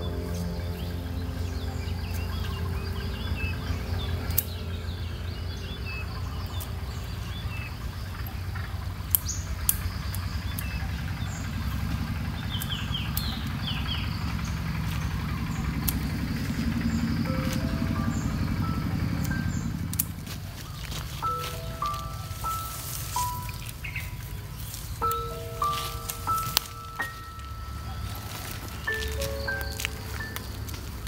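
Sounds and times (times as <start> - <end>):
birds chirping: 0.0 - 31.0
steady low rumble: 0.0 - 31.0
sharp clicks: 8.9 - 27.6.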